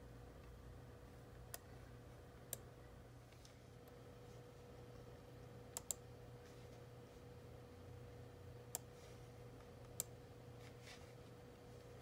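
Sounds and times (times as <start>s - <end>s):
faint steady hum: 0.0s - 12.0s
computer mouse clicks: 5.7s - 6.0s, 8.7s - 8.9s, 9.8s - 10.2s.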